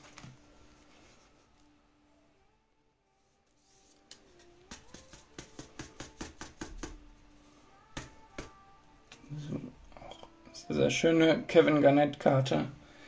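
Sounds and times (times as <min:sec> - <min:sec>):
trading cards clicking and tapping: 0:04.1 - 0:07.0.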